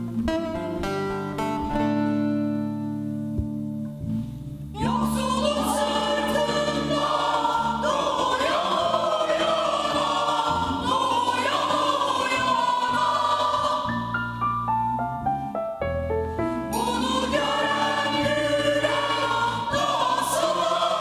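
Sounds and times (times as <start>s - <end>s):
plucked lute notes: 0.0s - 13.9s
choir singing in harmony: 4.8s - 14.4s, 16.7s - 21.0s.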